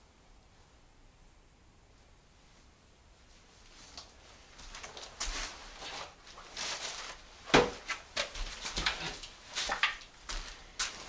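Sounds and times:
building scraps rustling and scraping: 3.6 - 11.0.

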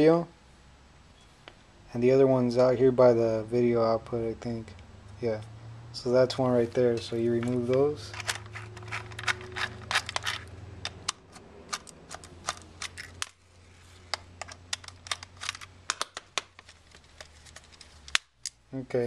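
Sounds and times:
steady low hum: 0.0 - 19.0
hands handling plastic: 6.6 - 19.0.

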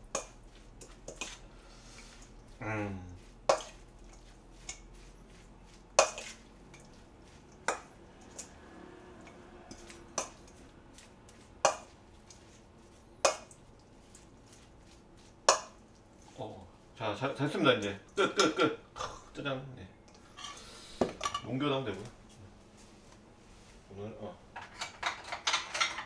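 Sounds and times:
metal mixing bowl clinking: 6.0 - 7.0.

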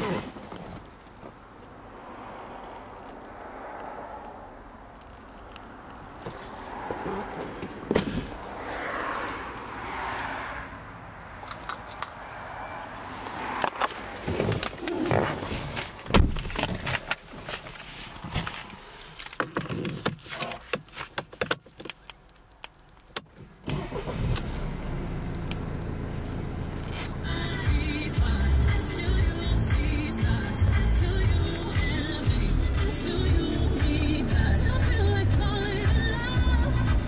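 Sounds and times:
handling clicks and rustles in car: 0.0 - 1.8, 2.6 - 9.5, 11.2 - 12.2, 13.0 - 28.2
diesel engine starting and idling: 23.4 - 37.0.

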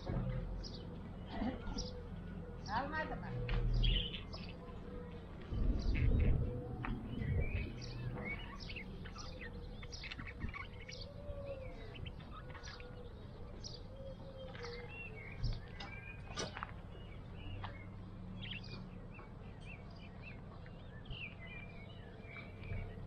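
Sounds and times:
low microphone rumble: 0.0 - 23.0
budgerigar chirping: 7.3 - 11.1.

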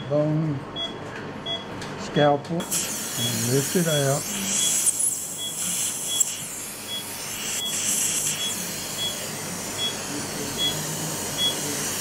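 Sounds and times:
patient monitor beeping: 0.8 - 1.7, 4.4 - 11.8
suction aspirator hissing: 2.6 - 12.0.

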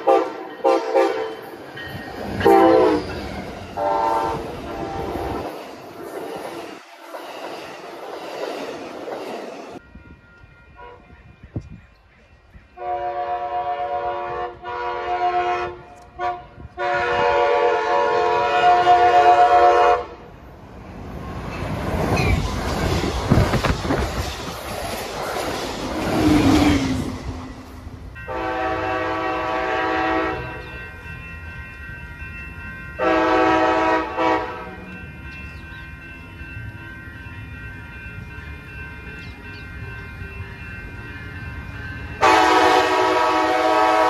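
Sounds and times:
train horn blasts: 0.0 - 1.4, 2.4 - 3.2, 3.8 - 5.6, 10.7 - 11.2, 12.8 - 20.3, 28.2 - 30.7, 33.0 - 35.0, 42.2 - 44.0
train wheels rumbling on rails: 0.0 - 15.0, 15.7 - 44.0.

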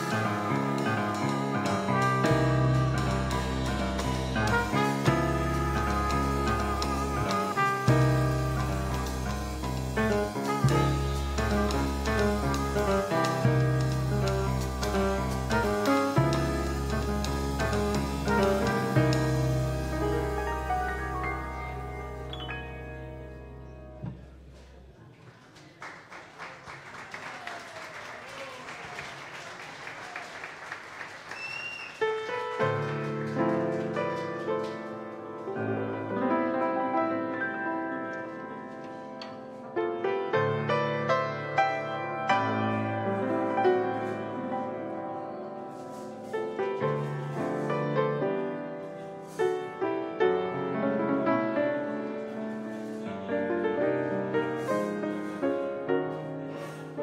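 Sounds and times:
grand piano chords and runs: 0.0 - 24.9, 32.1 - 57.0
small jazz band playing: 0.0 - 24.9, 31.3 - 57.0
audience applauding: 25.2 - 34.7
voices among clapping: 25.3 - 32.6.

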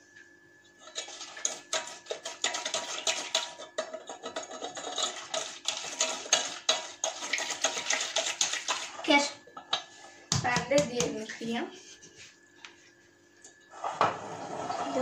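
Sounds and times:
utensil scraping metal pot: 0.8 - 9.3, 13.7 - 15.0.

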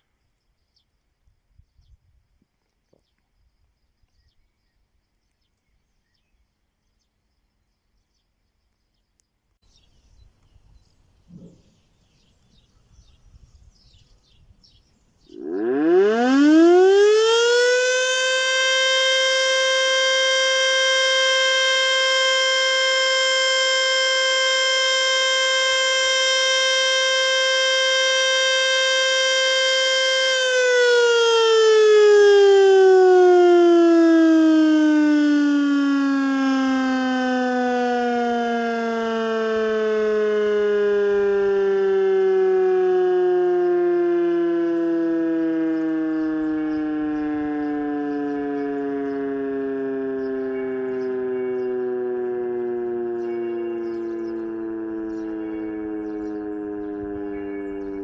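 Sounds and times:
electric motor siren winding: 15.4 - 58.0.

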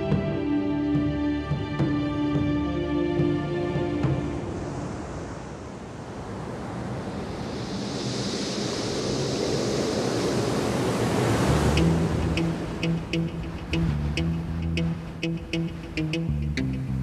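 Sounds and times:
ocean wave breaking: 3.2 - 16.4.

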